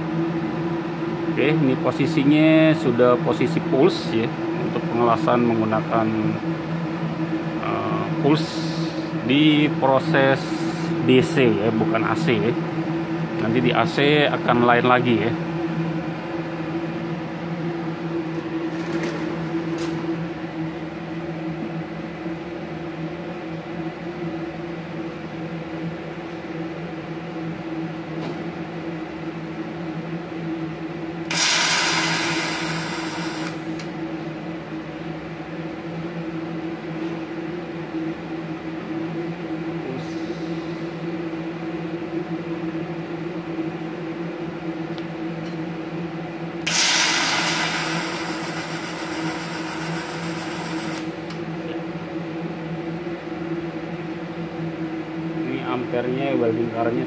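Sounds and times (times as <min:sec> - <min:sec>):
welder and cooler humming: 0:00.0 - 0:57.0
loud hiss: 0:31.3 - 0:33.7, 0:46.7 - 0:51.1.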